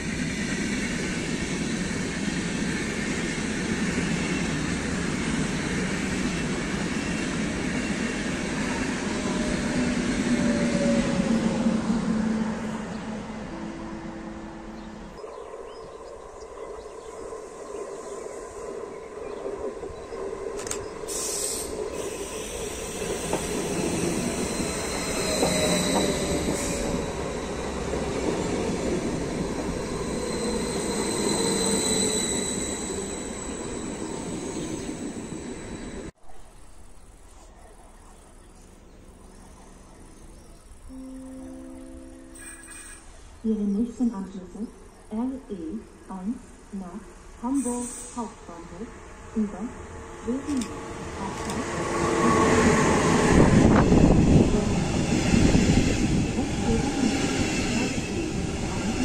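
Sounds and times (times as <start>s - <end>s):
train wheel squeal: 0.0s - 13.0s, 20.0s - 36.1s, 42.2s - 43.3s, 47.6s - 48.3s, 50.5s - 59.0s
train rolling past: 0.0s - 59.0s.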